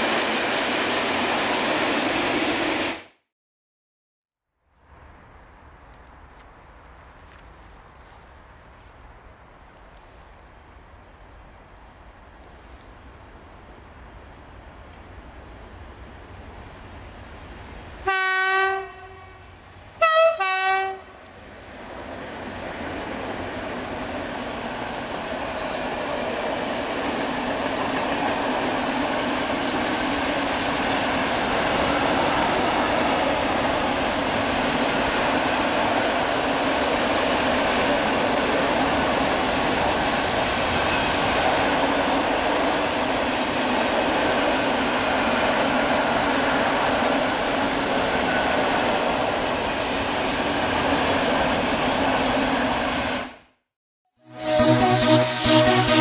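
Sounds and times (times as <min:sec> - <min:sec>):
freight train rolling rumble: 0:04.9 - 0:53.2
locomotive horn blast: 0:18.0 - 0:19.4, 0:20.0 - 0:21.2, 0:54.2 - 0:56.0.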